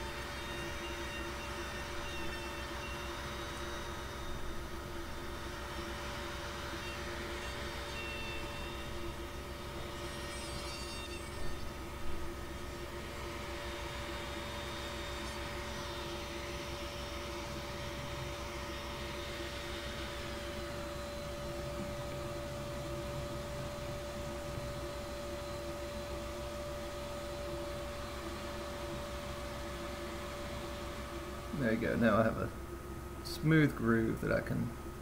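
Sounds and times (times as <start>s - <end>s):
electric tool motor humming: 0.0s - 31.6s.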